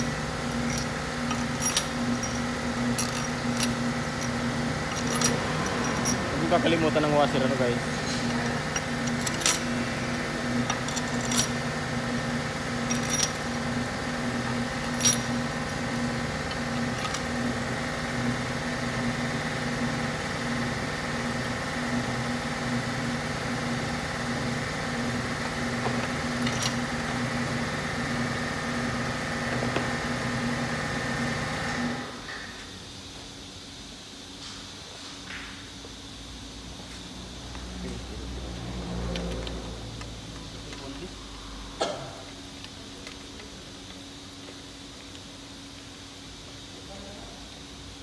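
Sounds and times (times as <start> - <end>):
metal parts clinking: 0.0 - 7.1, 7.9 - 9.8, 10.6 - 11.6, 12.8 - 13.6, 14.8 - 15.5, 16.4 - 17.3, 26.4 - 26.9
motor droning: 0.0 - 19.2.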